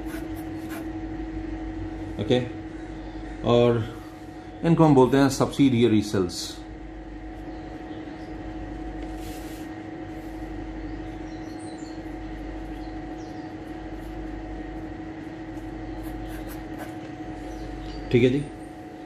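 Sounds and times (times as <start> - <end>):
pen scratching on paper: 0.0 - 0.9, 16.0 - 17.1
machine hum: 0.0 - 19.0.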